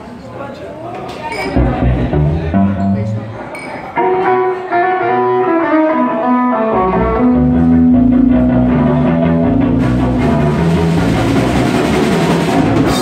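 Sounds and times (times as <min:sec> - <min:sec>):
bass guitar: 0:01.6 - 0:03.4, 0:04.0 - 0:13.0
electric guitar riff: 0:04.0 - 0:13.0
drum kit and cymbals: 0:09.2 - 0:13.0.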